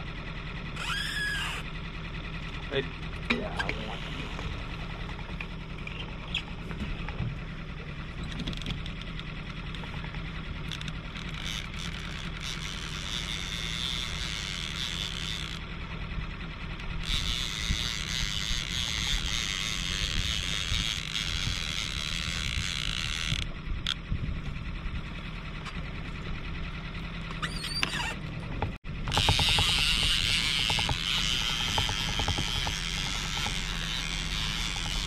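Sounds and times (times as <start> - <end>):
outboard motor running: 0.0 - 35.0
fishing reel cranking: 0.8 - 1.7, 10.6 - 15.6, 17.0 - 24.0, 29.1 - 35.0.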